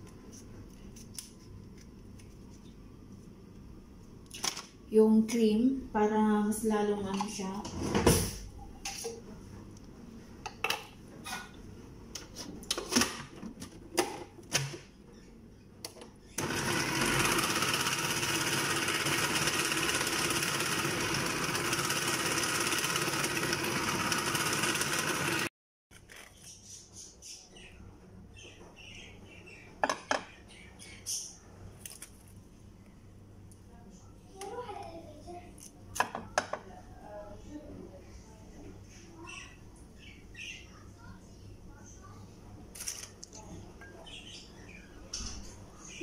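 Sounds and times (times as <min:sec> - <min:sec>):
food processor motor running: 0:16.4 - 0:25.5.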